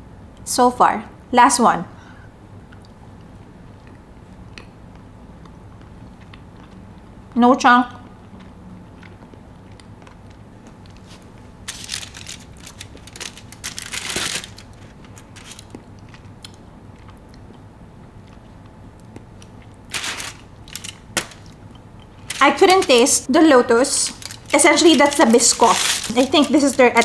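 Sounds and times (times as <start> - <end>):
chocolate bar crunching: 8.2 - 23.2, 24.0 - 27.0.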